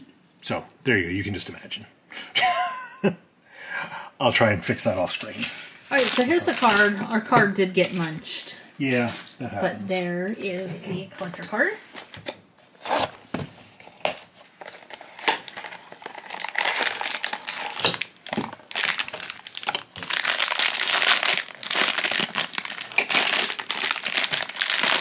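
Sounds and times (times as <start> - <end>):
foil wrapper crinkling and tearing: 5.4 - 7.0, 13.8 - 25.0.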